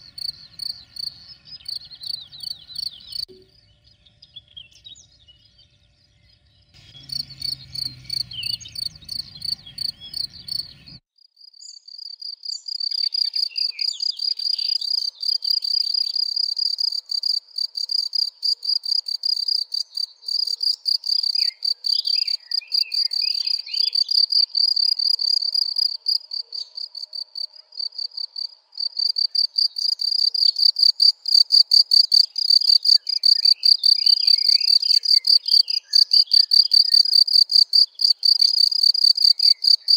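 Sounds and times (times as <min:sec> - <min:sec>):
cricket chirping: 0:00.0 - 0:03.3, 0:06.8 - 0:39.9
low rumble: 0:06.6 - 0:11.0.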